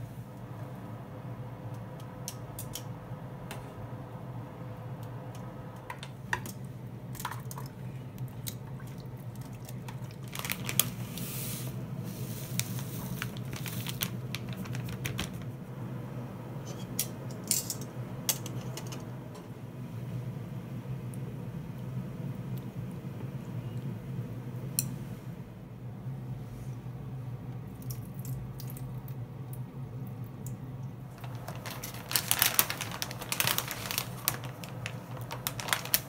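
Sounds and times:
steady low hum: 0.0s - 36.0s
utensils clinking: 16.7s - 19.1s.

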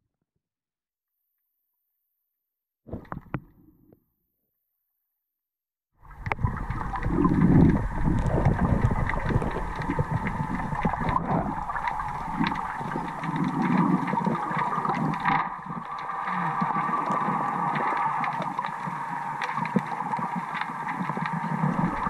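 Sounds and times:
sharp underwater clicks: 6.1s - 22.0s.

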